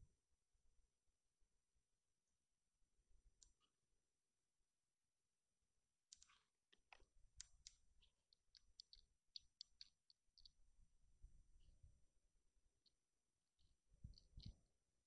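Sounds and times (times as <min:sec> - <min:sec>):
faint small clicks and ticks: 0:03.2 - 0:03.8, 0:06.0 - 0:12.0, 0:13.6 - 0:14.8.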